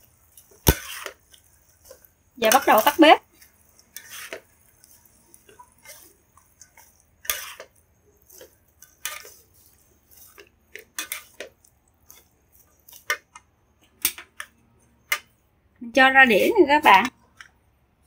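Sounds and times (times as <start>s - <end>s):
metal spatula scraping a wok: 0.4s - 13.2s, 16.2s - 17.1s.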